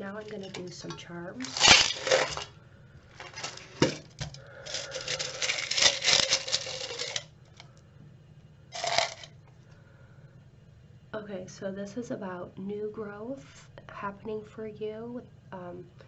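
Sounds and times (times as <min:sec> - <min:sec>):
metal charms rattling in a tin: 0:00.2 - 0:00.7, 0:04.6 - 0:07.3, 0:08.8 - 0:09.3.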